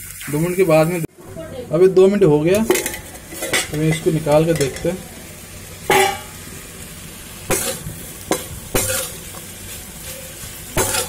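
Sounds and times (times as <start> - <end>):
food sizzling in hot oil: 0.0 - 11.0
metal spatula scraping pan: 7.5 - 11.0.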